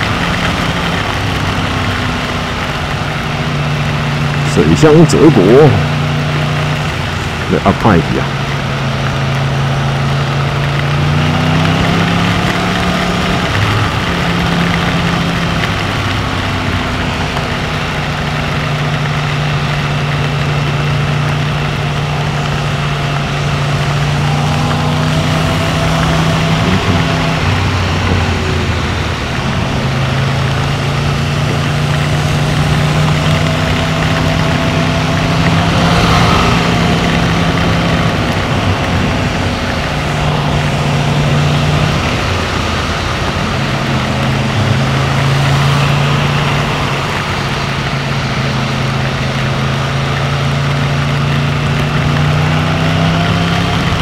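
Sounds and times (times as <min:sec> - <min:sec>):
motorcycle engine cruising: 0:00.0 - 0:54.0
tyre noise on wet road: 0:00.0 - 0:54.0
wind rush: 0:23.5 - 0:45.6.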